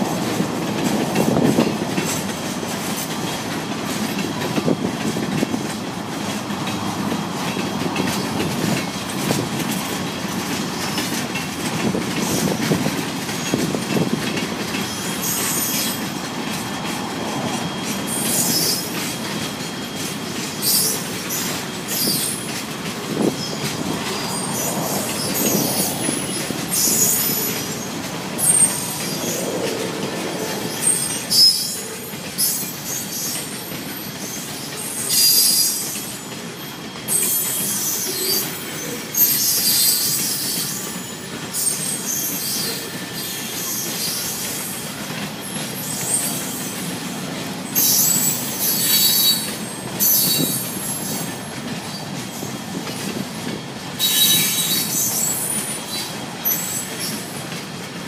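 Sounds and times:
freight train wheels rumbling: 0.0s - 58.0s
high-pitched wheel squeals: 16.7s - 47.0s, 47.7s - 57.2s.

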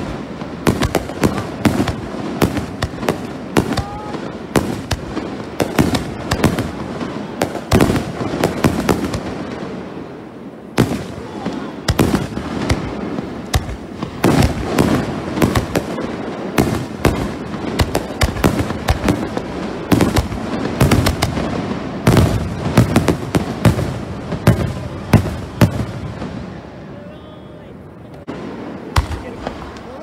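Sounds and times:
firework shells bursting: 10.8s - 25.9s.

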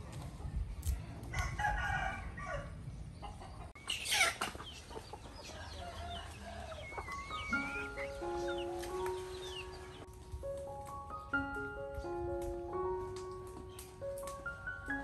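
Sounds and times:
rooster crowing: 1.3s - 2.8s, 5.5s - 7.5s.

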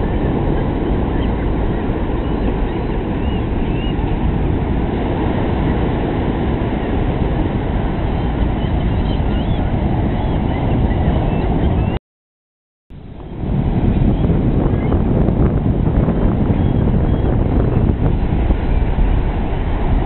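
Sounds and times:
gulls calling: 0.0s - 6.6s, 7.7s - 12.0s, 13.1s - 15.2s, 16.1s - 19.1s
surf on a beach: 0.0s - 11.9s, 13.0s - 20.0s.

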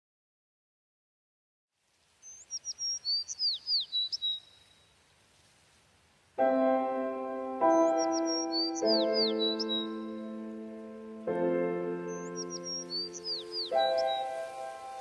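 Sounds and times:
keyboard music with piano chords: 6.4s - 15.0s.

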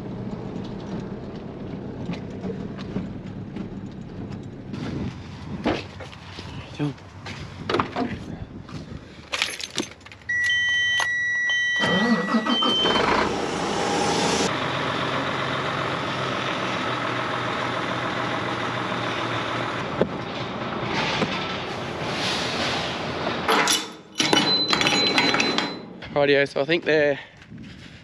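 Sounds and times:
truck engine starting and idling: 0.0s - 5.4s, 10.0s - 23.5s
electronic warning beeps: 10.3s - 13.2s.

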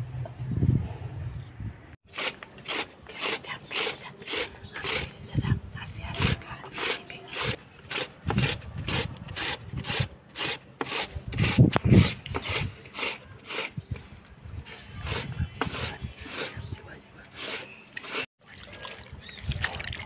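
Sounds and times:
potato grating on metal grater: 2.1s - 5.1s, 6.1s - 13.8s, 15.0s - 16.7s, 17.3s - 18.3s.

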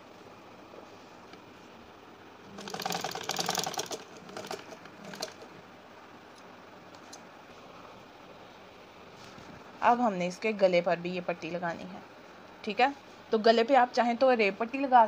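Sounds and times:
sewing machine stitching: 2.5s - 5.5s.

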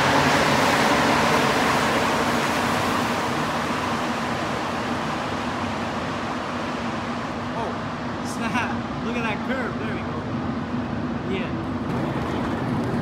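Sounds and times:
metro train pulling out: 0.0s - 7.0s.

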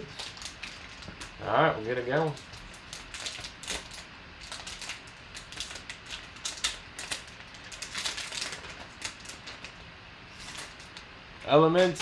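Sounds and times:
foil wrapper crinkling: 0.0s - 11.1s.

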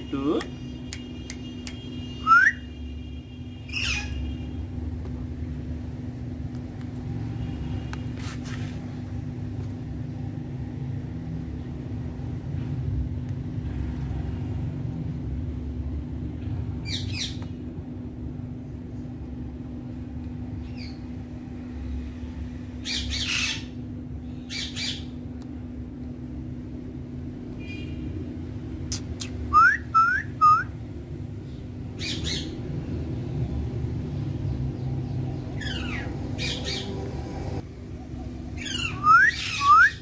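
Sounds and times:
steady low hum: 0.0s - 40.0s
parakeet calling: 2.2s - 2.7s, 3.6s - 4.4s, 16.8s - 17.4s, 22.8s - 23.8s, 24.4s - 25.2s, 31.9s - 32.6s, 35.3s - 37.0s, 38.6s - 40.0s.

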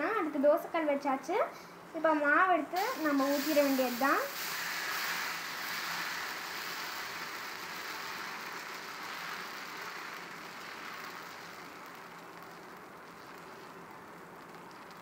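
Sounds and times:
batter sizzling on a griddle: 2.8s - 15.0s.

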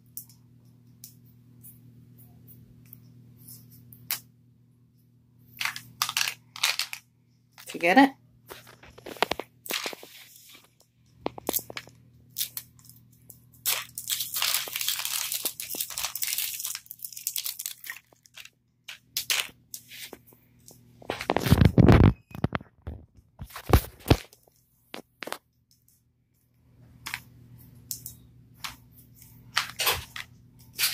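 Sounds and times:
wrapping crinkling and tearing: 5.6s - 7.0s, 8.5s - 20.2s.

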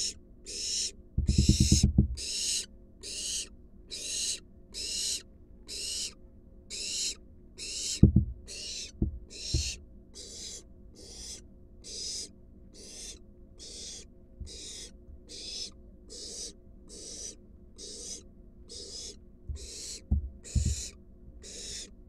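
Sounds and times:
owl hissing begging calls: 0.0s - 21.9s
rattle of dull knocks: 1.2s - 2.2s, 8.0s - 8.4s, 9.0s - 9.8s, 19.5s - 20.9s
sharp thumps: 1.2s - 2.2s, 8.0s - 9.8s, 19.5s - 20.9s.

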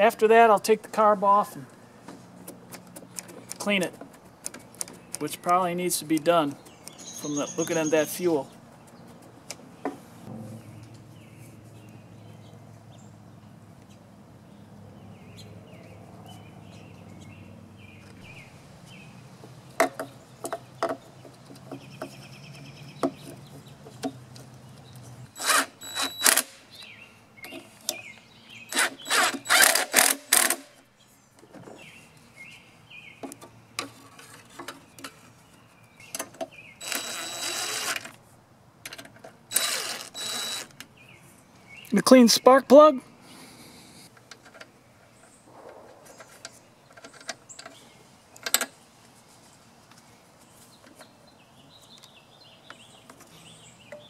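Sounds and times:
cordless drill running in bursts: 36.8s - 38.0s, 39.5s - 40.7s.

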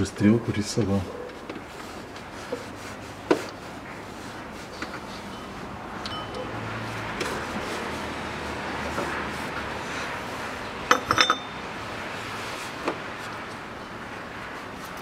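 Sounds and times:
metal tools clinking: 5.3s - 6.5s, 10.9s - 11.6s.

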